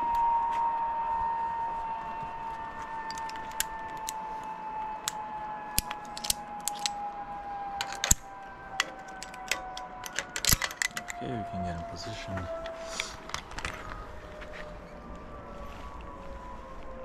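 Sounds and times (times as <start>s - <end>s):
steady whine falling in pitch: 0.0s - 17.0s
carabiners clicking and clinking: 3.1s - 4.2s, 5.8s - 7.0s, 7.8s - 11.2s.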